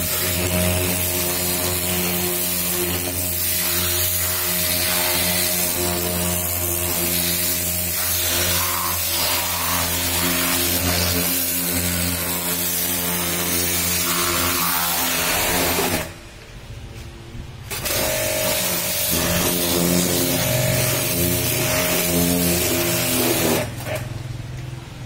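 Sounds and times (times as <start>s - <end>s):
pressure washer motor hum: 17.7s - 24.8s.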